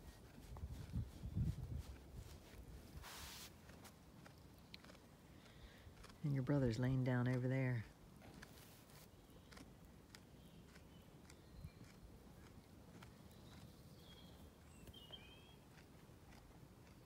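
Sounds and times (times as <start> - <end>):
sheep chewing cud clicks: 0.0 - 17.0
faint bird chirps: 13.3 - 15.6.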